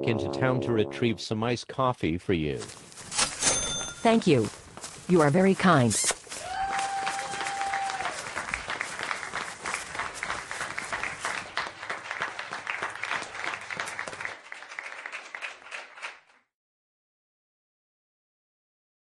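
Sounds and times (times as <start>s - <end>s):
audience applause: 6.4s - 16.5s.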